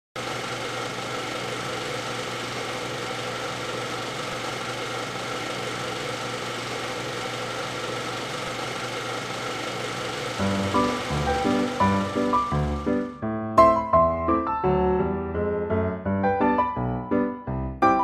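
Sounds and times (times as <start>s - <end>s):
film projector whirring: 0.2s - 13.1s.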